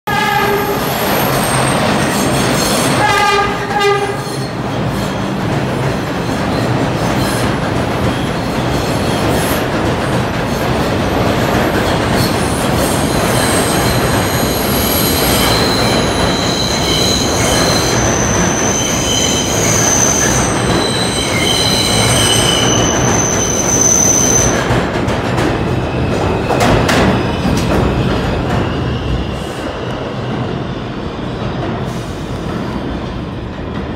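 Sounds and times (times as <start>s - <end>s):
train horn: 0.1s - 0.8s, 3.0s - 4.4s
subway train rumbling past: 0.1s - 33.9s.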